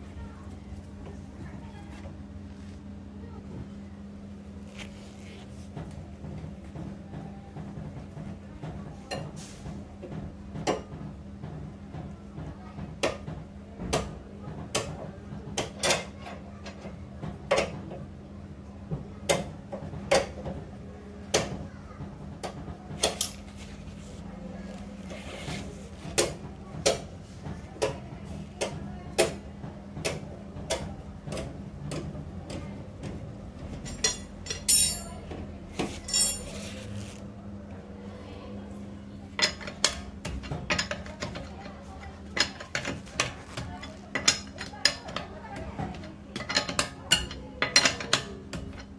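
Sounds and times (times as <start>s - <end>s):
hand tools clinking on metal: 33.8s - 35.2s, 36.0s - 36.7s.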